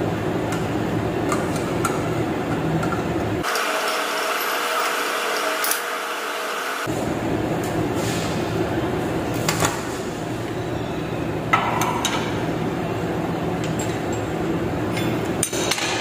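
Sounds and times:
metal tools clinking on vise: 14.9 - 15.9.

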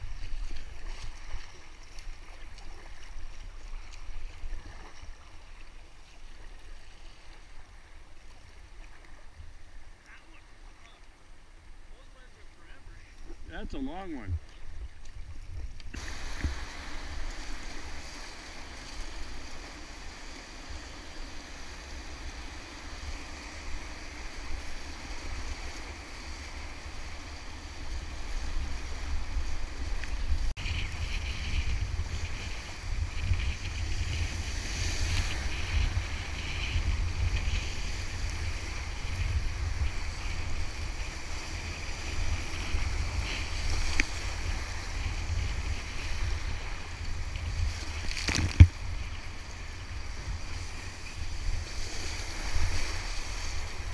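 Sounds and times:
wind buffeting microphone: 13.4 - 53.9
rushing whitewater: 16.0 - 30.4.

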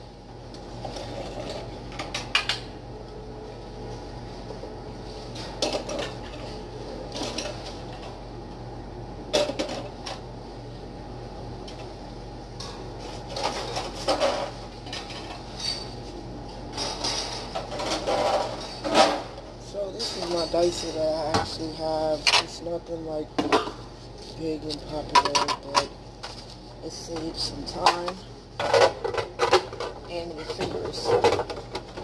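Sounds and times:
steady low hum: 0.0 - 32.0
dishes and utensils clattering: 16.7 - 19.3, 19.9 - 22.5, 25.1 - 25.9.

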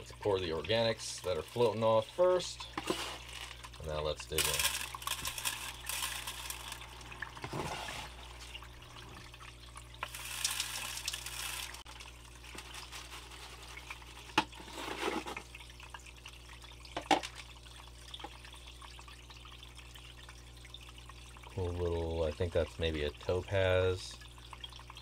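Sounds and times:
water running through sluice: 0.0 - 17.6.

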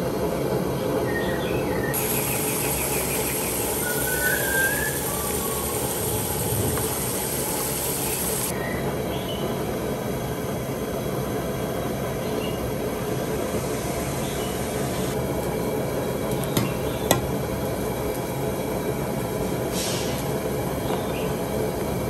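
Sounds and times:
water boiling and bubbling: 1.9 - 8.6.

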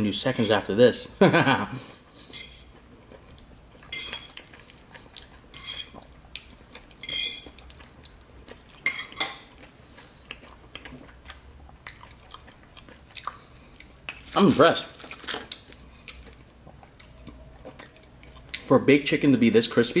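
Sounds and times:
fork clinking on a plate: 3.9 - 4.3.

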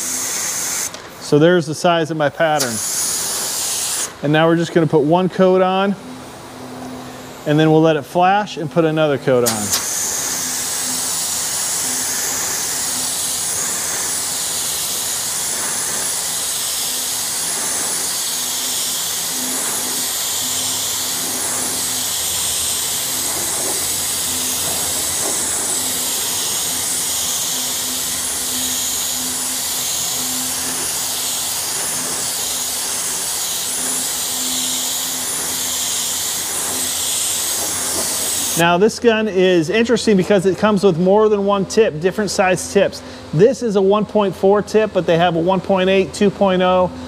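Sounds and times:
spray gun hissing: 0.0 - 1.4, 2.1 - 4.2, 8.8 - 38.8.

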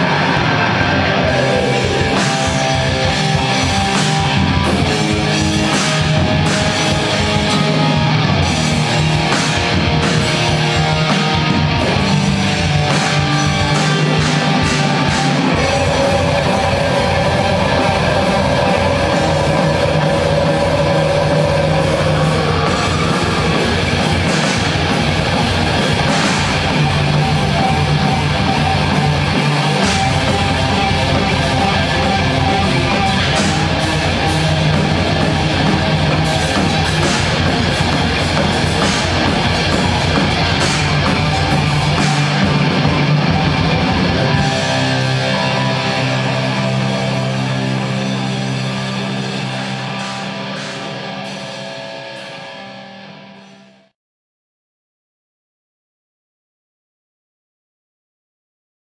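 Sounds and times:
heavy metal band playing: 0.0 - 53.9.

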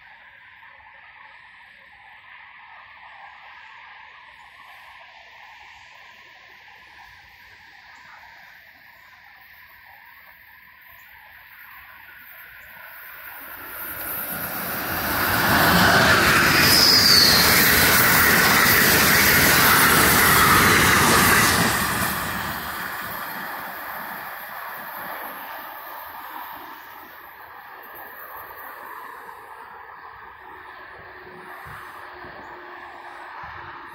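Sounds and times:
train passing at speed: 0.0 - 33.9
high squeal: 13.0 - 25.4.

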